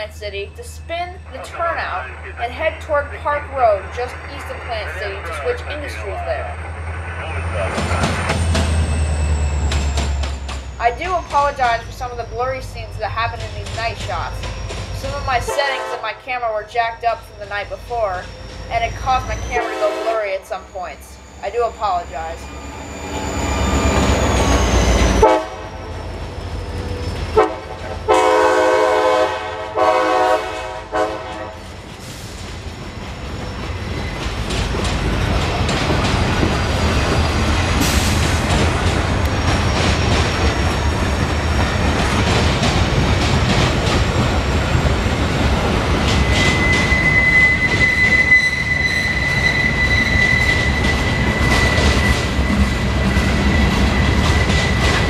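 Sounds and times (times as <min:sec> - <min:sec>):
high wheel squeal: 0:04.4 - 0:15.5, 0:17.1 - 0:28.3, 0:31.7 - 0:42.0, 0:46.0 - 0:55.0
train wheels clacking over rail joints: 0:07.7 - 0:15.9, 0:31.2 - 0:47.0, 0:50.2 - 0:55.0
train horn blasts: 0:15.4 - 0:16.2, 0:19.5 - 0:20.4, 0:25.2 - 0:26.0, 0:27.4 - 0:31.7.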